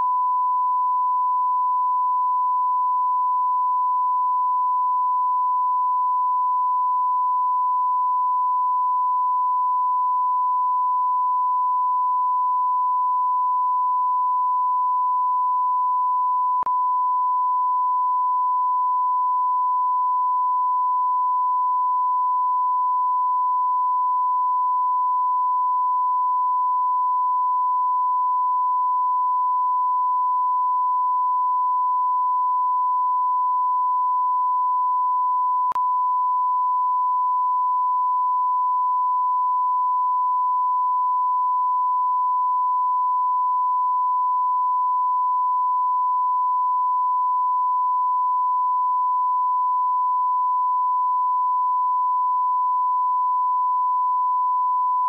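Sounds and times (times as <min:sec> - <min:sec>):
sine-wave test tone: 0:00.0 - 0:55.0.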